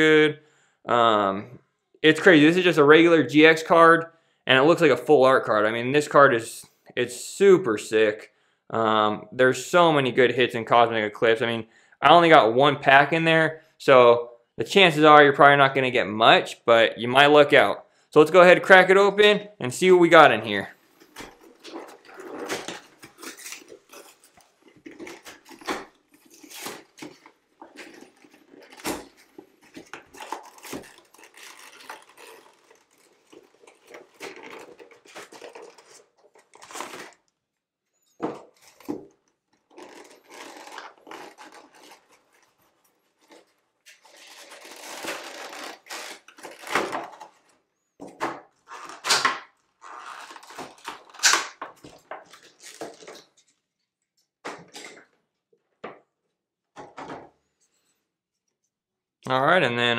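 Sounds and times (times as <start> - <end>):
cardboard and plastic tearing: 20.8 - 37.4, 38.2 - 53.8.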